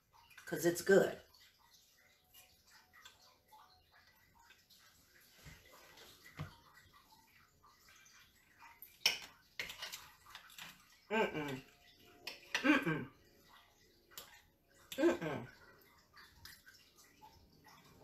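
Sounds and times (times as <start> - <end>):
cutlery clinking on plate: 9.0 - 10.8.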